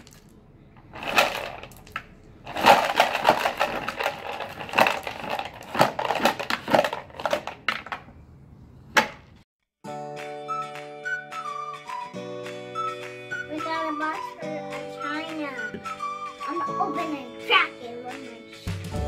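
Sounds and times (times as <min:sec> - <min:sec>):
plastic bucket scraping gravel: 0:02.5 - 0:07.6.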